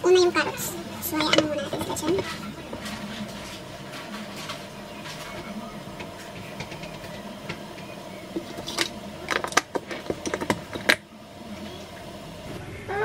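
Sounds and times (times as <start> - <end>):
sharp clicks and knocks: 4.0 - 11.1.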